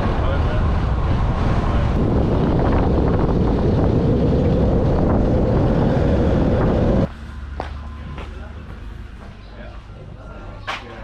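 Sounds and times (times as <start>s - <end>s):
wind buffeting microphone: 0.0s - 7.1s
vehicle road and engine noise: 0.0s - 11.0s.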